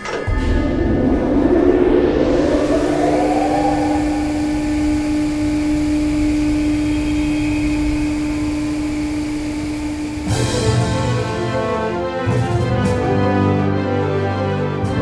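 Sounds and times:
fan whine: 0.0s - 12.0s
rush of air: 0.3s - 8.0s.

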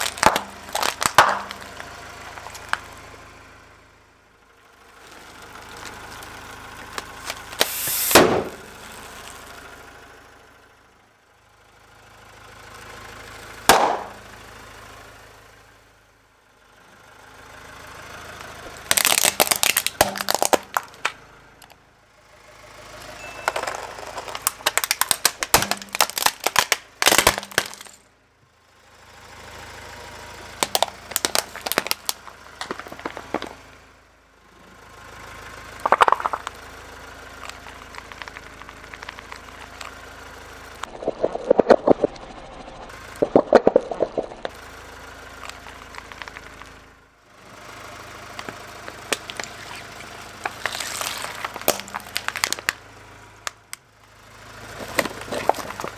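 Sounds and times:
foil balloon bursting: 0.0s - 1.6s, 7.6s - 8.6s, 18.9s - 21.0s, 23.5s - 28.0s
plastic cracking and crunching: 0.0s - 2.8s, 18.8s - 21.2s, 23.5s - 28.0s, 30.6s - 33.6s, 35.8s - 36.5s, 48.4s - 52.8s, 54.8s - 55.9s
car engine hum: 0.0s - 55.9s
sharp snap: 7.6s - 8.6s, 13.7s - 14.2s.

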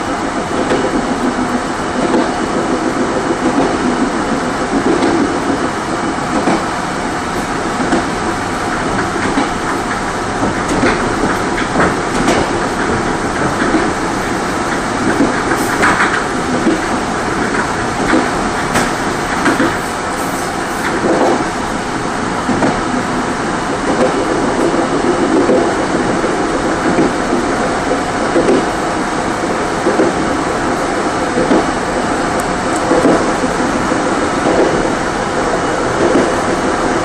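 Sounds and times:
train wheels rumbling on rail: 0.0s - 37.0s
clicks over rail joints: 7.3s - 21.5s, 31.3s - 33.4s.

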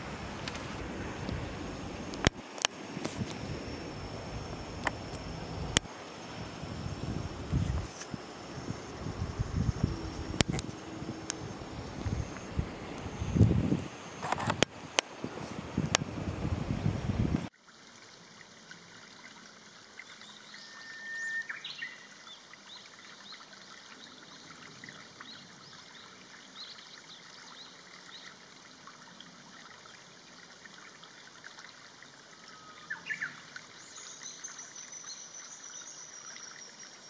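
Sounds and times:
stream babbling over stones: 0.0s - 37.0s
bird whistles with upward flick: 20.6s - 22.1s.

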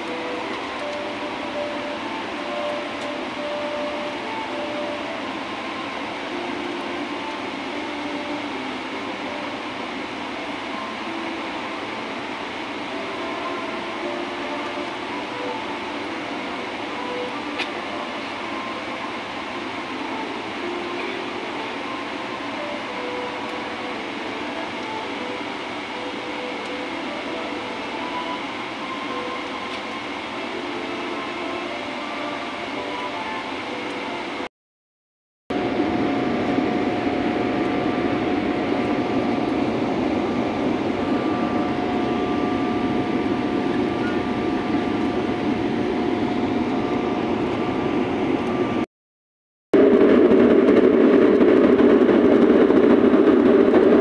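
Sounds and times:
airliner cabin noise: 0.0s - 34.5s, 35.5s - 48.9s, 49.8s - 54.0s
jet engines: 0.0s - 34.5s, 35.5s - 48.9s, 49.8s - 54.0s
rushing air: 49.8s - 54.0s.

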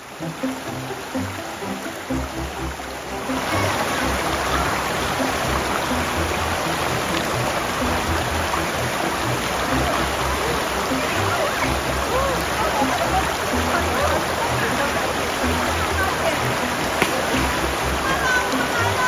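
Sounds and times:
background music with bass: 0.0s - 19.0s
river rapids rushing over rocks: 0.0s - 19.0s.

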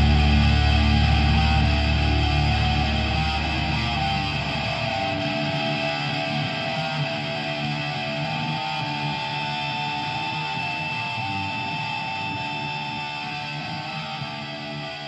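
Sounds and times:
deep bass: 0.0s - 5.2s
guitar chords ringing: 0.0s - 15.0s.

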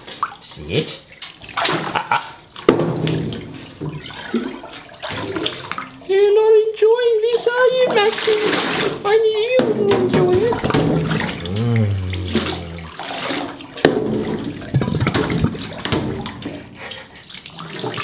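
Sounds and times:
water splashing in metal sink: 0.0s - 18.0s.

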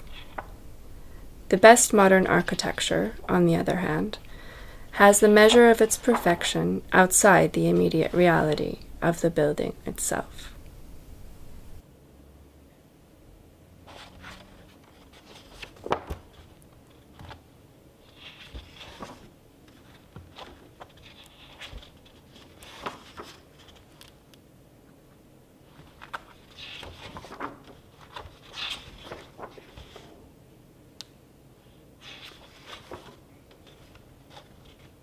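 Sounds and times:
book pages turning: 0.0s - 0.5s, 5.2s - 6.6s, 13.9s - 17.4s, 18.0s - 24.2s, 25.7s - 30.2s, 32.0s - 35.0s.

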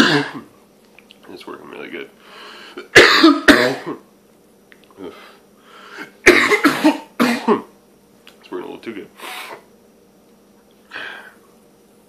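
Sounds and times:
man coughing hard: 0.0s - 0.5s, 2.8s - 4.1s, 6.1s - 7.7s.

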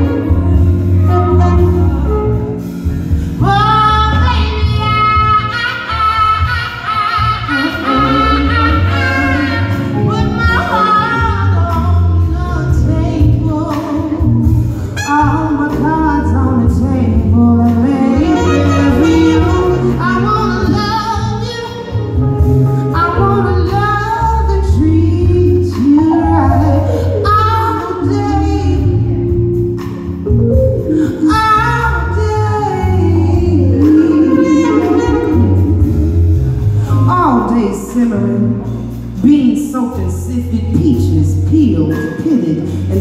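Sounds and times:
low instrumental backing: 0.0s - 43.0s
woman singing into microphone: 3.2s - 22.2s, 22.9s - 29.4s, 31.0s - 36.2s.

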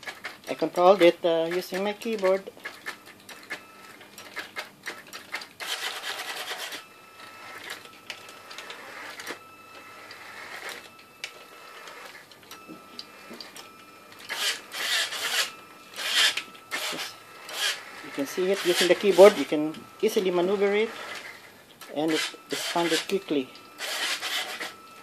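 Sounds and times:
small motors whirring: 1.0s - 25.0s.

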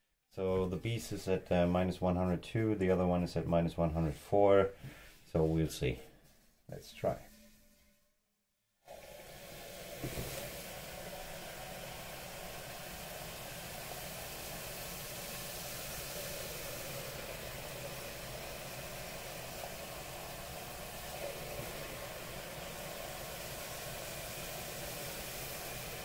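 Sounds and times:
liquid nitrogen boiling hiss: 8.8s - 26.0s.

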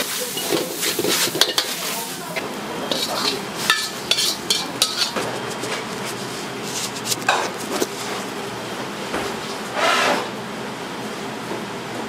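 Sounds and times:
metal cookware clanking: 0.0s - 1.9s, 2.8s - 5.3s.

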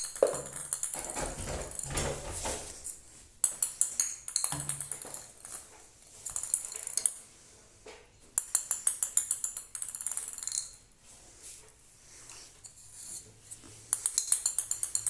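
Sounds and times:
ping-pong ball clicking on tiles: 0.0s - 1.3s, 3.4s - 5.6s, 6.3s - 7.2s, 8.4s - 10.8s, 13.9s - 15.0s.

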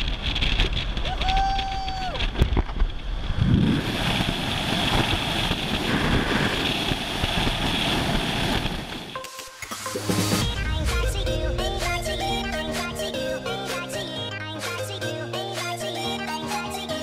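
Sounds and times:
wind buffeting microphone: 0.0s - 9.2s
wind rush: 0.0s - 9.2s, 10.4s - 13.4s.

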